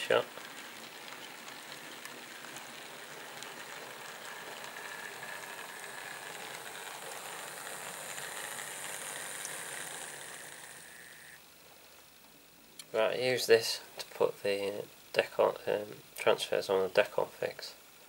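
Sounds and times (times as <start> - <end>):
model train wheels rattling: 0.0 - 11.4
faint clicks: 0.4 - 11.1
thin electric motor whine: 1.9 - 11.5.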